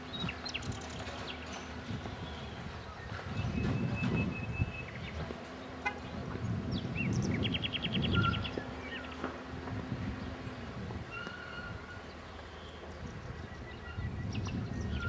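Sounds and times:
birds chirping: 0.0 - 15.0
bird trill: 7.0 - 9.2, 11.1 - 12.8.

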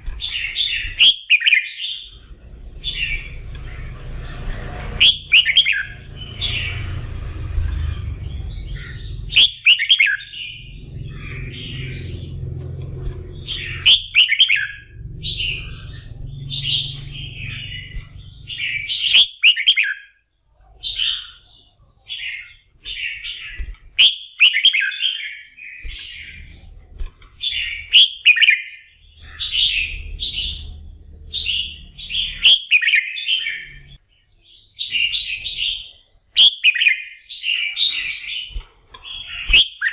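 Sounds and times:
bird singing warbled phrases: 0.0 - 39.9
low background rumble: 1.9 - 19.2, 28.9 - 32.5.

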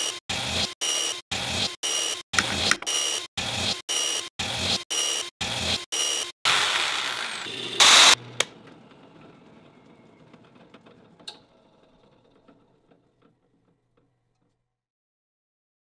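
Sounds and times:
jigsaw cutting wood: 2.4 - 4.8, 5.4 - 8.5.

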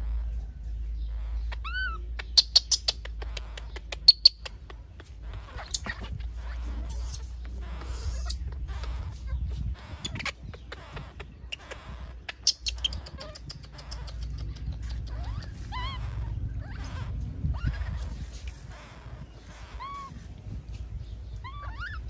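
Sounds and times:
small animals squeaking: 0.0 - 22.0
low rumble: 3.0 - 22.0.

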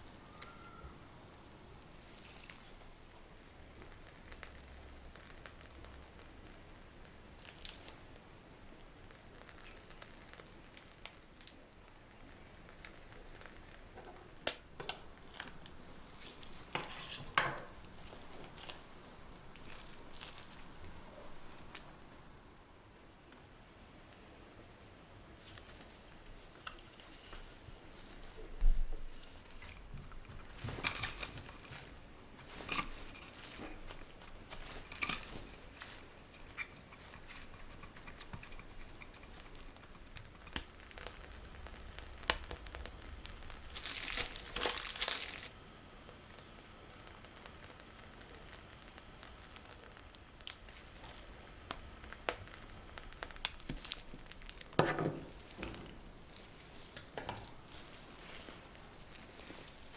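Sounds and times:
plastic crinkling and rustling: 1.9 - 8.1, 9.0 - 22.0, 25.3 - 59.9
piping bag squeeze: 1.9 - 21.9, 25.2 - 59.9
plastic sheet rustle: 25.4 - 40.7, 42.3 - 45.6, 52.7 - 59.9.

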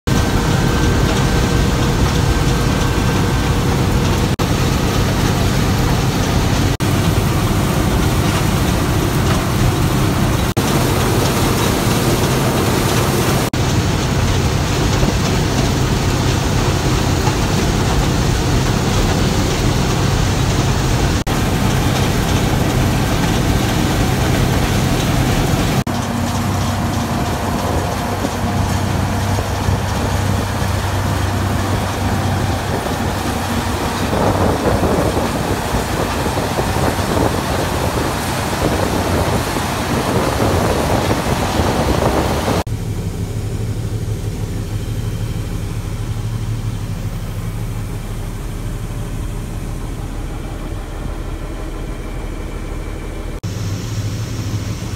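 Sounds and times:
combine harvester running: 0.1 - 54.9.

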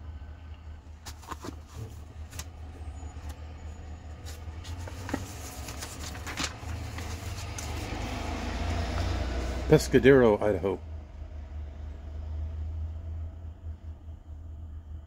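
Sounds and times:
vehicle rumble from inside: 0.0 - 15.0
paper pages rustling: 1.0 - 3.4, 4.1 - 9.1.

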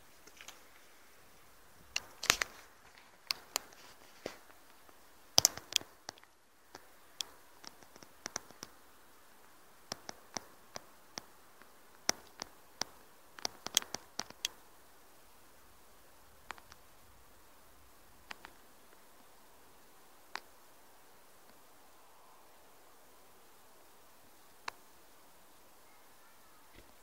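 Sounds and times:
faint steady hiss: 0.0 - 27.0
sharp clicks and taps: 5.4 - 8.7, 9.9 - 14.6.

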